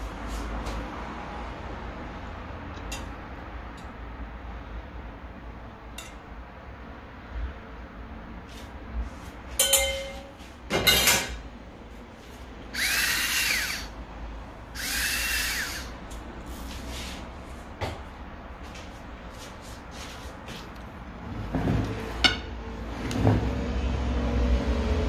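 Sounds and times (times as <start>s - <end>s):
ringing clink: 9.6s - 10.3s
small electric motor whirring: 12.7s - 13.9s, 14.7s - 16.0s.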